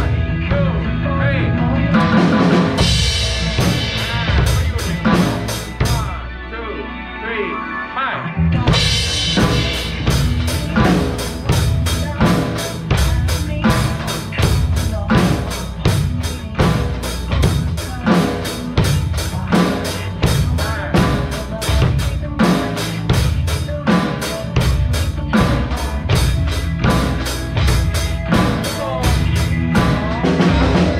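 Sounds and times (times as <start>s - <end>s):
drum kit steady beat: 0.0s - 6.2s, 8.6s - 30.9s
pop song backing track: 0.0s - 30.9s.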